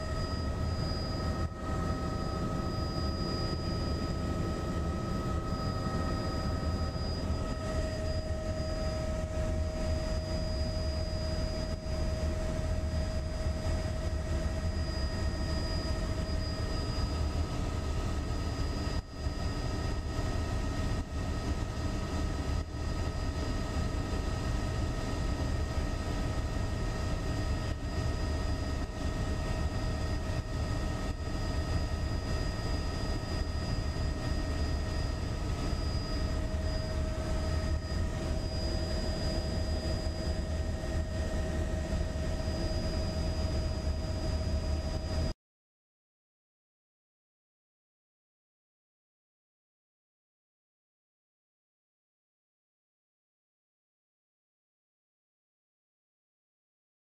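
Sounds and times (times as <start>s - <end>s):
helicopter rotor and engine drone: 0.0s - 45.4s
high steady whining tones: 0.0s - 45.4s.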